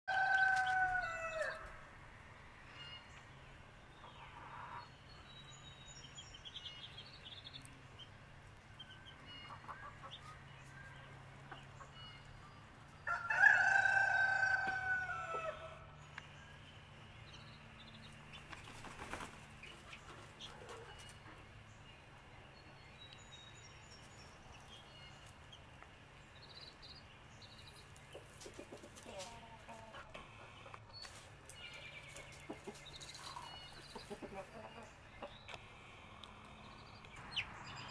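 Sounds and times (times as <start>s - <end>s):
rooster crowing: 0.1s - 1.8s, 13.0s - 15.9s
hens clucking: 9.2s - 10.5s, 27.8s - 36.6s.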